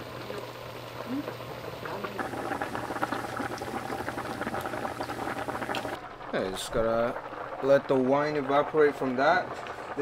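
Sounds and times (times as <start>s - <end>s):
clams sizzling in a frying pan: 0.0s - 10.0s
wine being poured: 2.2s - 8.6s.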